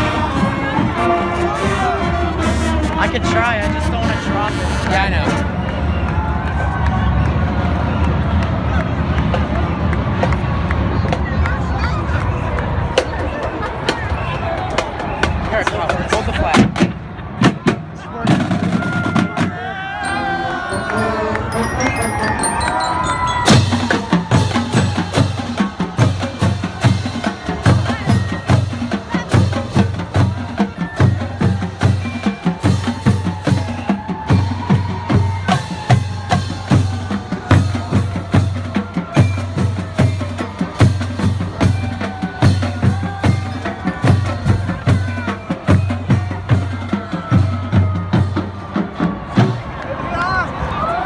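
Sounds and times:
steady bass drum beat: 0:23.5 - 0:49.6.

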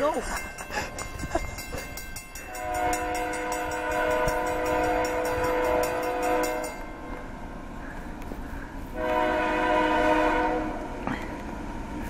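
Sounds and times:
locomotive air horn blast: 0:02.5 - 0:06.8, 0:09.0 - 0:11.1.

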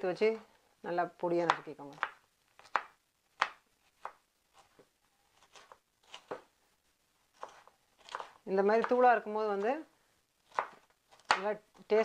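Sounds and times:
knife chopping on wooden board: 0:10.5 - 0:11.5.

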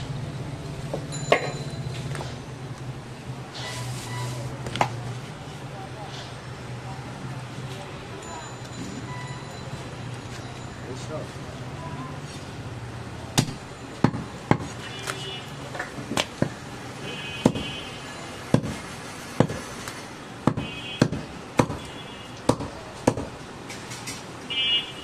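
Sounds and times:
chopper chopping meat and bone: 0:13.4 - 0:14.7, 0:17.4 - 0:17.7, 0:18.5 - 0:18.8, 0:19.4 - 0:19.7, 0:20.4 - 0:23.4.

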